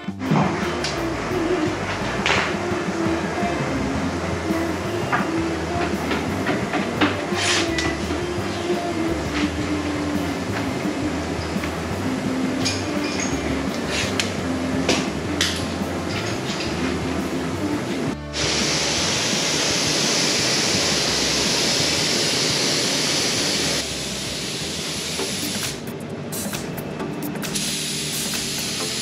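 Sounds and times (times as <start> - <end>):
background music: 0.0 - 29.0
paint spray gun hissing: 18.4 - 25.8, 27.5 - 29.0.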